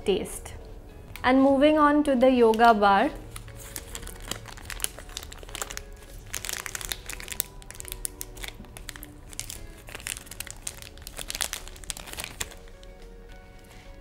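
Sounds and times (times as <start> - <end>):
wrapper crinkling and tearing: 3.2 - 13.9.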